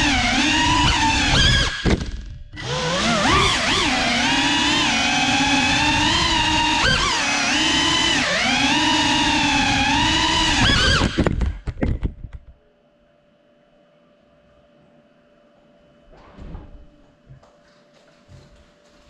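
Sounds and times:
drone propellers whining: 0.0 - 11.5
faint hum: 11.4 - 19.0.

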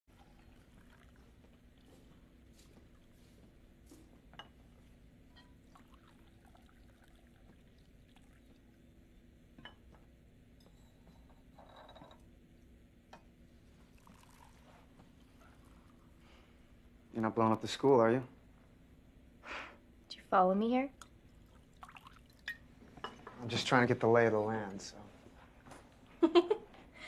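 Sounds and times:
liquid pouring: 0.1 - 3.1, 5.5 - 8.8, 13.7 - 16.4, 21.0 - 22.7
low room hum: 0.1 - 27.0.

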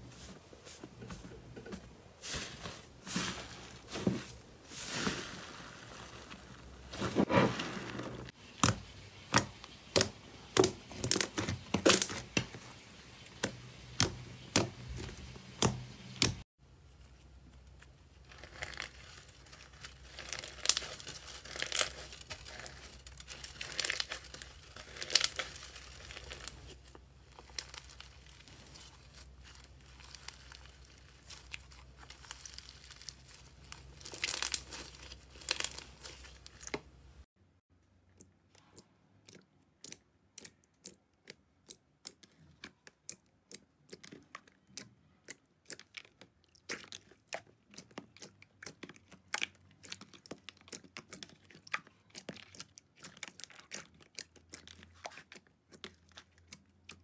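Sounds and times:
crunchy slime crackling: 18.1 - 37.0, 38.5 - 57.0.

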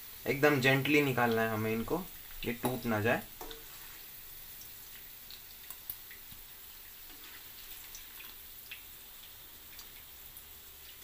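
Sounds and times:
hot oil sizzling: 0.0 - 11.0
small crackles and ticks: 4.6 - 10.1.

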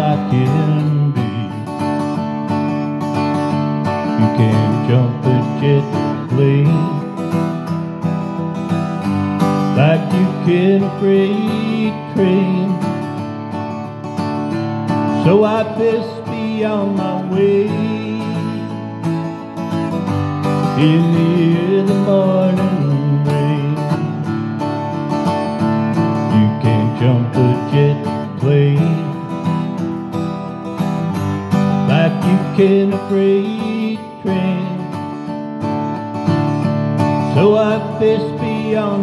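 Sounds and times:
man singing: 0.0 - 2.2, 3.9 - 7.6, 9.4 - 13.3, 14.9 - 24.4, 25.8 - 29.8, 31.2 - 35.4, 37.1 - 39.0
acoustic guitar strumming: 0.0 - 39.0.

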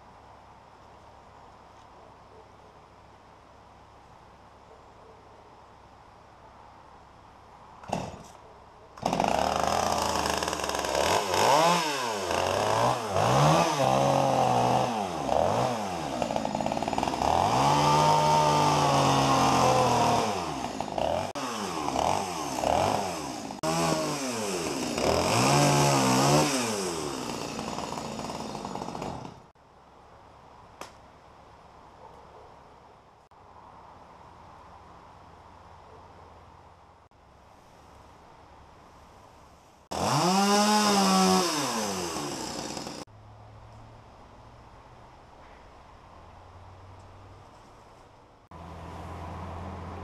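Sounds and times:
chainsaw cutting limbs: 7.8 - 8.4, 9.0 - 29.5, 39.9 - 43.1.

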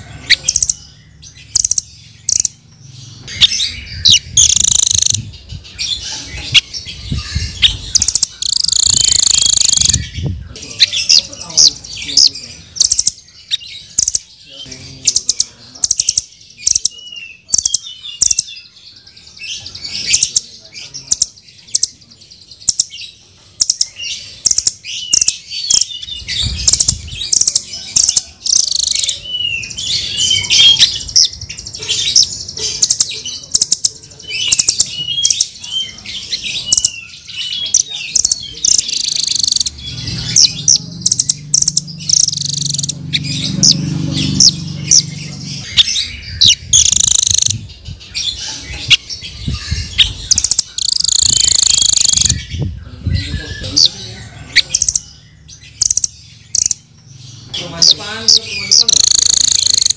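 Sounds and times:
bird chirping and twittering: 0.0 - 59.9
sharp clicking bird notes: 46.7 - 47.6, 50.3 - 52.4, 58.7 - 59.9.

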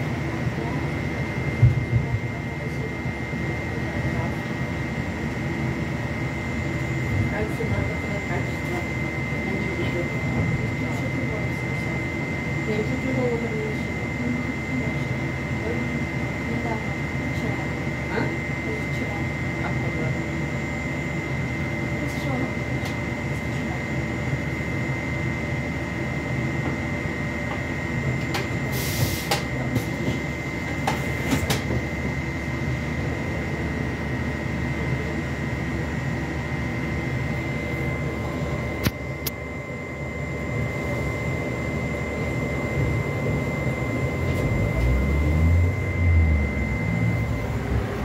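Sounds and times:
trolleybus running rumble: 27.4 - 33.5, 42.2 - 48.0
high-pitched whine: 35.1 - 48.0.

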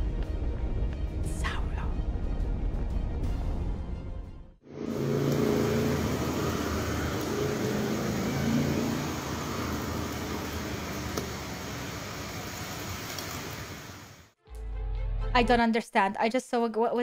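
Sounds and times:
vehicle engine running: 4.7 - 12.8
street traffic noise: 4.7 - 14.0.

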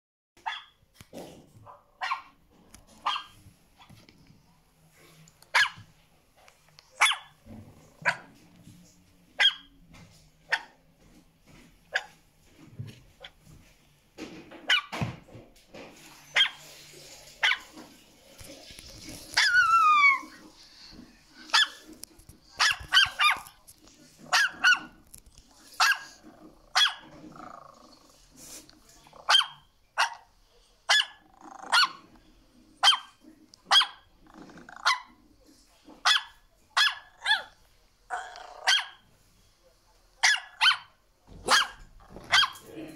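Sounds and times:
dog barking: 0.4 - 0.8, 1.6 - 2.4, 3.0 - 3.4, 5.5 - 5.9, 7.0 - 7.4, 8.0 - 8.3, 9.4 - 9.8, 10.5 - 10.8, 11.9 - 12.2, 14.7 - 15.0, 16.3 - 16.6, 17.4 - 17.8, 21.4 - 21.9, 22.6 - 23.5, 24.2 - 25.0, 25.8 - 27.1, 29.2 - 30.3, 30.9 - 32.1, 32.8 - 34.0, 36.0 - 37.6, 38.6 - 39.0, 40.2 - 42.6
dog yelping: 0.4 - 0.8, 3.0 - 3.3, 7.0 - 7.3, 9.4 - 9.7, 19.4 - 20.4, 25.8 - 27.0, 33.7 - 34.0, 38.2 - 39.0, 40.2 - 40.9.

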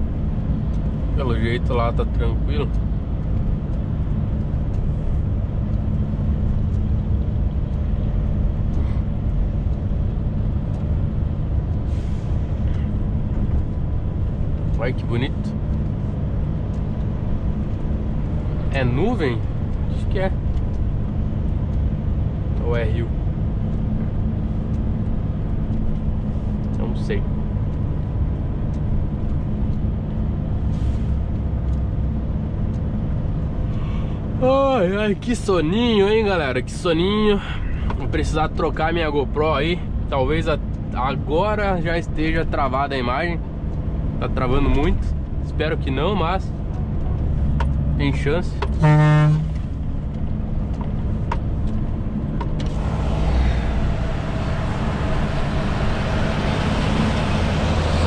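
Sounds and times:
road noise: 0.0 - 58.0
truck diesel engine droning: 0.0 - 58.0
rushing hiss: 52.7 - 58.0.

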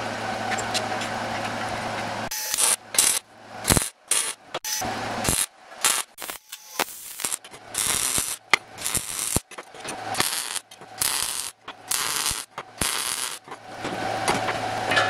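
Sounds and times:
low welder hum: 0.0 - 15.0
welding arc crackling: 2.3 - 14.1.

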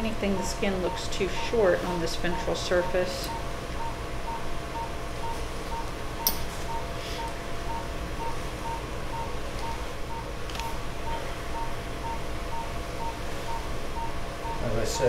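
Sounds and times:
low steady hum: 0.0 - 15.0
monitor beeping: 0.0 - 15.0.

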